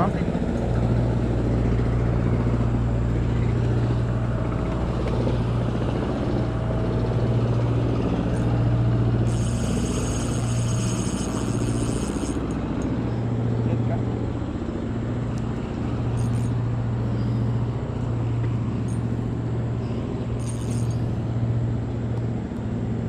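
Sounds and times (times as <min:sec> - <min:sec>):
small boat engine droning: 0:00.0 - 0:23.0
thin high-pitched whine: 0:06.0 - 0:14.0, 0:15.3 - 0:21.6.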